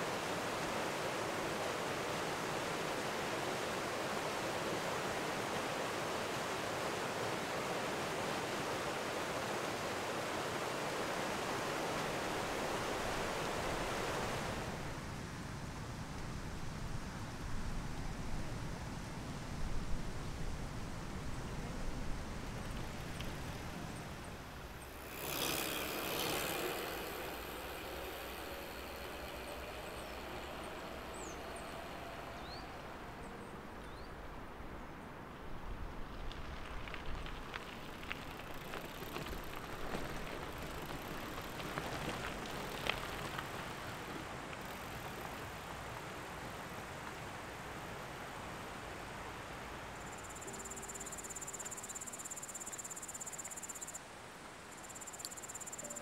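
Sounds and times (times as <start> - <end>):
bicycles rattling on rough trail: 22.5 - 32.6, 36.1 - 46.2
vehicle passing: 24.4 - 33.7.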